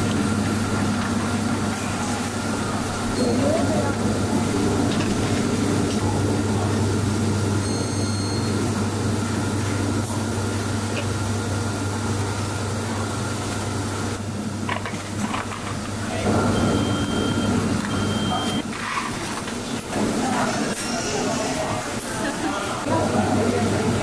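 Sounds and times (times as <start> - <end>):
low machinery hum: 0.0 - 24.0
thin electronic beep: 7.6 - 8.6, 16.5 - 18.6.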